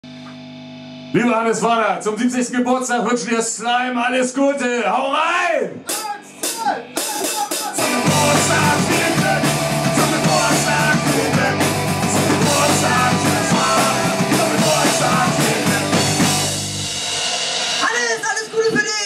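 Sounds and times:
punk rock band playing: 5.8s - 19.0s.

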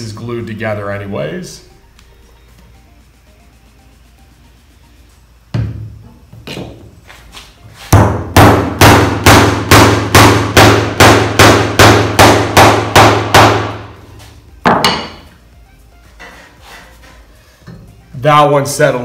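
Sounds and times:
hammer knocking wooden dowel: 7.9s - 13.8s.

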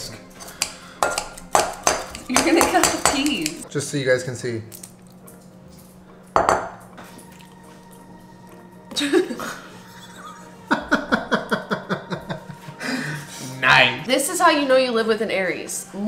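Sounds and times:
glass bowl clink: 6.3s - 6.9s
man laughing: 9.0s - 13.0s.

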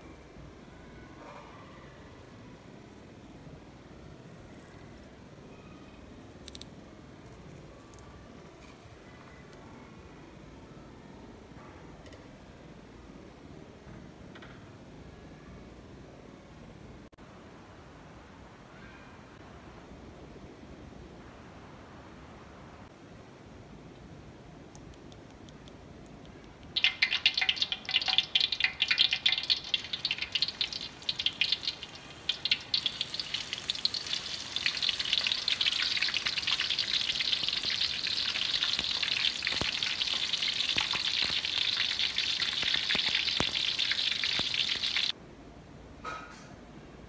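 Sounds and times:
food deep-frying in hot oil: 26.7s - 45.2s.

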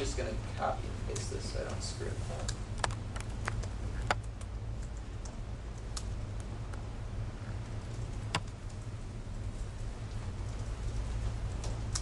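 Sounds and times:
steady low hum: 0.0s - 12.0s
laptop keyboard keystrokes: 7.9s - 8.6s.

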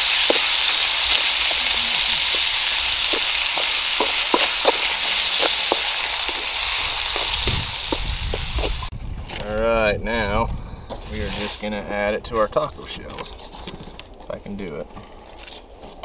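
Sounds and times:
food sizzling in wok: 0.0s - 8.9s
spatula clicking and scraping pan: 3.1s - 6.5s.

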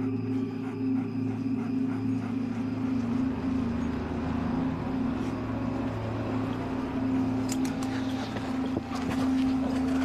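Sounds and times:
low hum of two tones: 0.0s - 10.0s.

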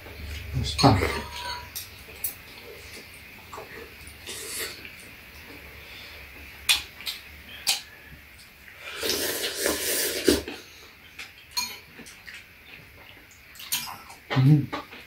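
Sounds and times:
utensils clinking on ceramic bowls: 0.3s - 2.4s, 11.5s - 12.1s
slurp of broth: 8.8s - 10.6s.

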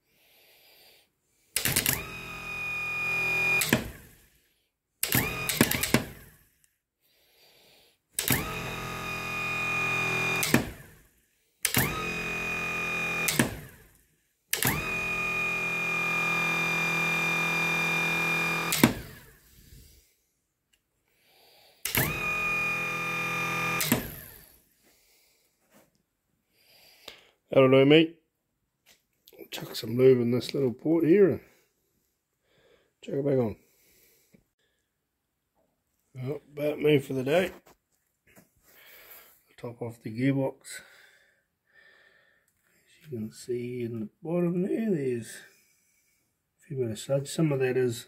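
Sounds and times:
starter motor whine: 1.6s - 4.4s, 5.0s - 6.6s, 8.2s - 19.9s, 21.8s - 24.6s
jumper lead click: 5.0s - 6.3s.

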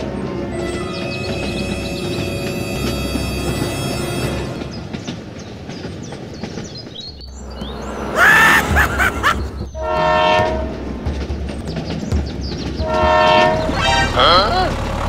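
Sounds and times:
train horn blasts: 9.7s - 10.9s, 12.8s - 14.3s.

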